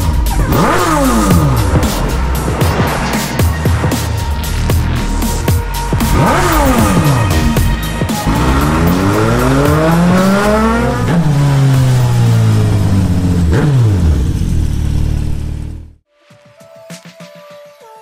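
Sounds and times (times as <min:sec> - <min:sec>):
music: 0:00.0 - 0:12.8, 0:16.0 - 0:18.0
vehicle engine revving past: 0:00.5 - 0:07.6, 0:08.2 - 0:14.4.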